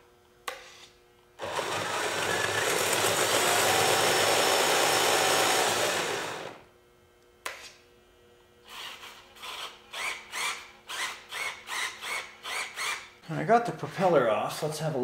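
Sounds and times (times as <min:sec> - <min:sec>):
electric motor whirring: 0:01.4 - 0:06.6
short rising whirs: 0:01.4 - 0:06.7.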